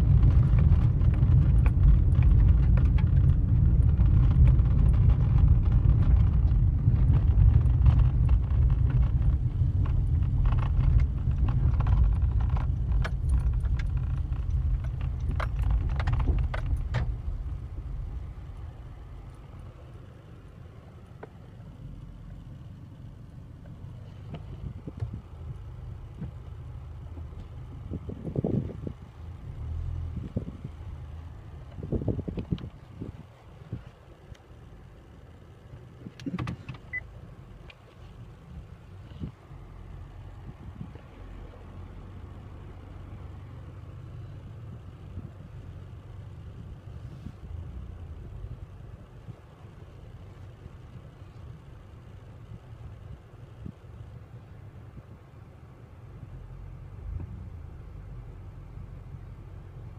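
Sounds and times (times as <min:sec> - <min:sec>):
clicking and rattling: 0:00.0 - 0:18.7
low steady hum: 0:00.0 - 0:59.9
road rumble inside car: 0:00.0 - 0:59.9.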